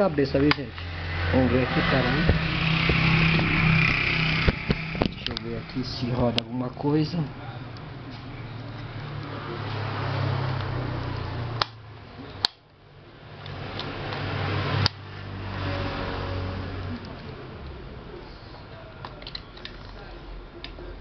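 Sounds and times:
tower fan motor humming: 0:00.0 - 0:12.2.

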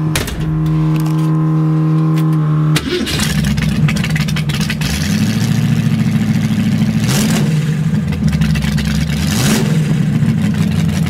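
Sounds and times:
starter motor whine: 0:00.0 - 0:04.9
loud engine running: 0:00.0 - 0:11.0.

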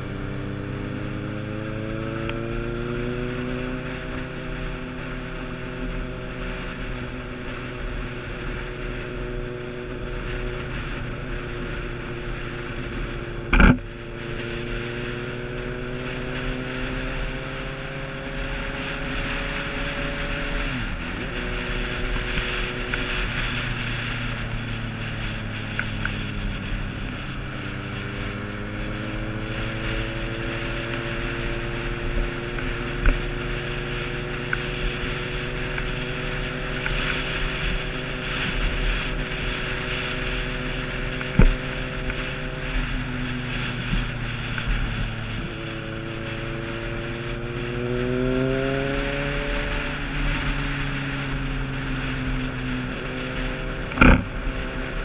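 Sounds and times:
motorcycle engine accelerating: 0:00.0 - 0:55.0
wind rushing over microphone: 0:00.0 - 0:55.0.

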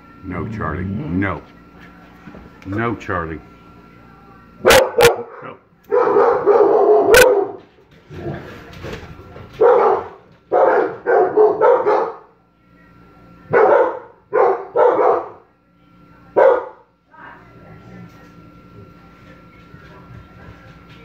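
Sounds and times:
dog barking: 0:04.6 - 0:07.6, 0:09.6 - 0:12.3, 0:13.5 - 0:15.4, 0:16.4 - 0:16.9.

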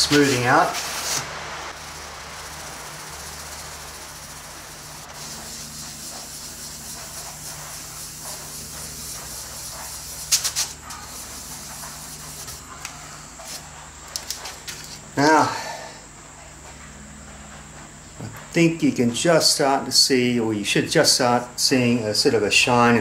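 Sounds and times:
pad scrubbing on wood: 0:00.0 - 0:15.0.

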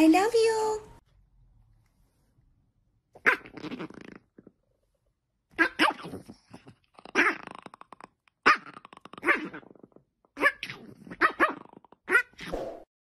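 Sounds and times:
dog growling: 0:03.2 - 0:04.6, 0:05.6 - 0:12.4
dog barking: 0:10.4 - 0:12.4.

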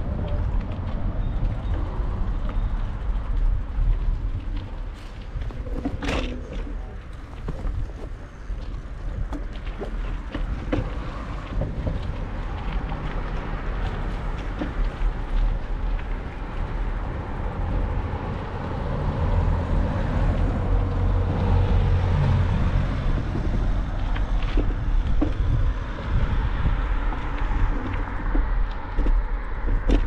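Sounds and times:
low rumble of road traffic: 0:00.0 - 0:30.0
wind on microphone: 0:00.0 - 0:30.0.

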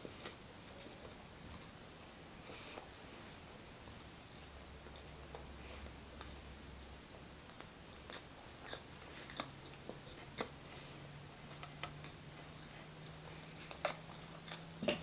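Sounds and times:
faint low hum: 0:00.0 - 0:15.0
chewing with wet mouth clicks: 0:07.5 - 0:10.6, 0:11.4 - 0:15.0.

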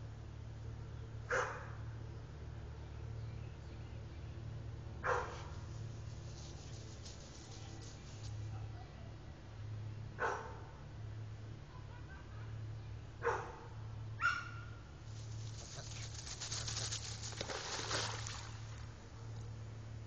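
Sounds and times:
scratchy otter chatter: 0:15.2 - 0:17.4.

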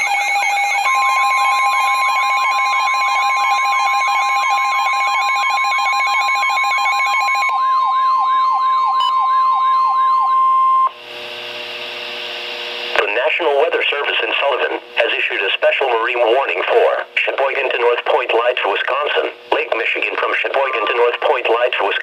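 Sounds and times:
warbling siren alert: 0:00.0 - 0:11.0
loud long tone: 0:04.1 - 0:12.9
radio hiss: 0:11.0 - 0:22.0.

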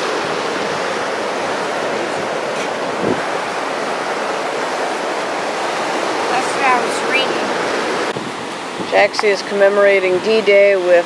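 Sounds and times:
surf washing onto beach: 0:00.0 - 0:11.0.

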